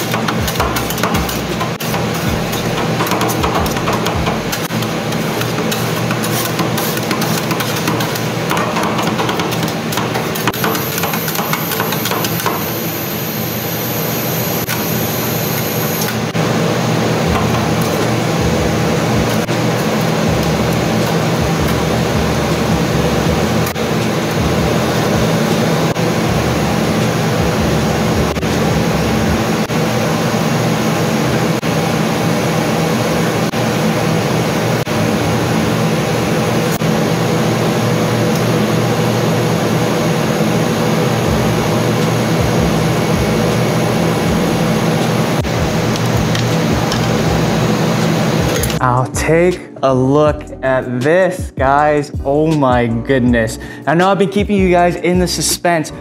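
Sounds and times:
metal spatulas scraping and tapping: 0:00.0 - 0:12.6
refrigeration unit humming: 0:00.0 - 0:56.0.

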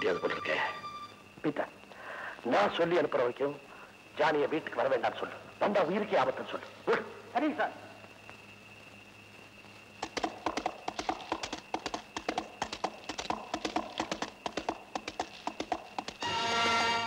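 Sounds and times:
horse hooves clip-clopping: 0:09.7 - 0:17.0.

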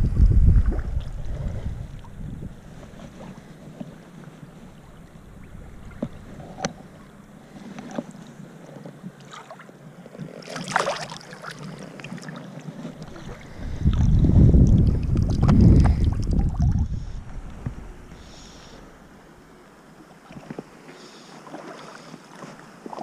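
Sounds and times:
river water lapping and splashing: 0:00.6 - 0:23.0
loud splash: 0:10.5 - 0:11.3.

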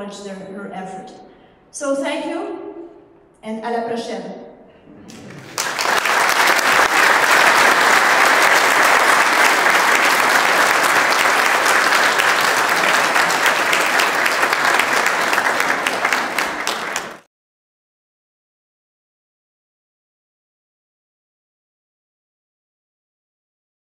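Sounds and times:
audience applauding: 0:05.1 - 0:17.3.

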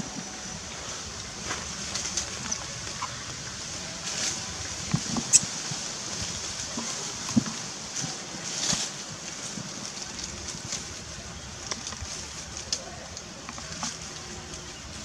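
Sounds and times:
light clicks and rustles: 0:04.1 - 0:15.0.

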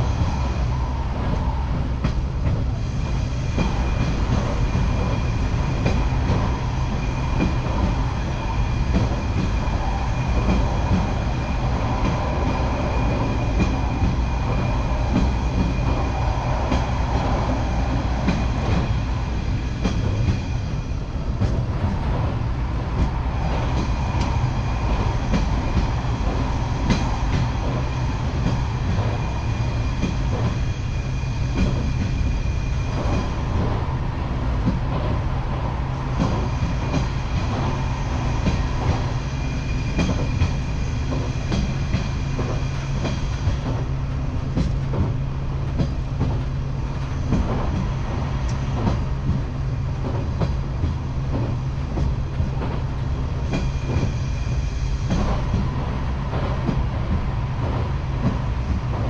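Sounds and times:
train rumbling along track: 0:00.0 - 0:59.0.

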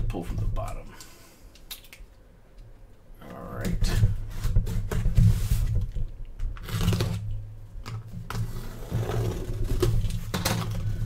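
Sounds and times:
box cutter slicing packing tape: 0:06.6 - 0:07.2.

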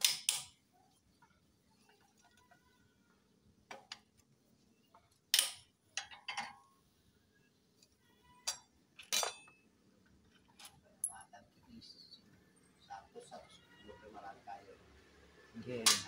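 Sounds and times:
metal parts clinking: 0:08.4 - 0:09.6.

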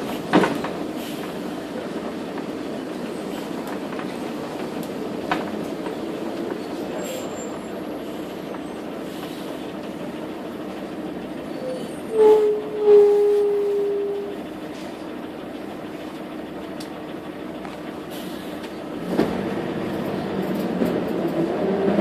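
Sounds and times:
brakes squealing: 0:00.0 - 0:22.0
bus engine drone: 0:00.0 - 0:22.0
road noise: 0:00.0 - 0:22.0.

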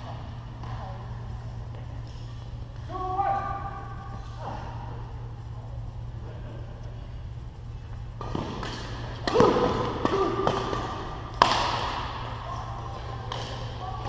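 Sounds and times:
rackets striking shuttlecock: 0:08.2 - 0:12.4, 0:13.2 - 0:13.8.

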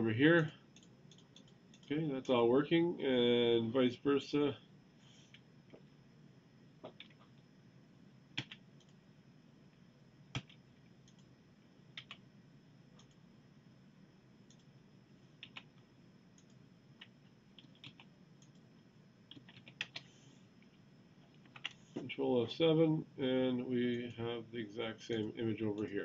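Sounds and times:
keyboard clicks: 0:00.4 - 0:02.4, 0:06.8 - 0:07.4, 0:08.4 - 0:09.0, 0:10.3 - 0:11.3, 0:11.9 - 0:12.2, 0:13.0 - 0:13.2, 0:14.5 - 0:14.7, 0:15.4 - 0:15.7, 0:16.4 - 0:18.7, 0:19.3 - 0:20.1, 0:21.3 - 0:21.8.

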